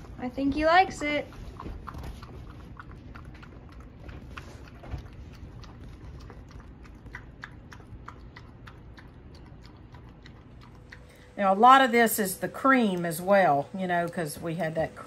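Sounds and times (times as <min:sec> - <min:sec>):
dog lapping from plastic bowl: 0:01.0 - 0:11.4.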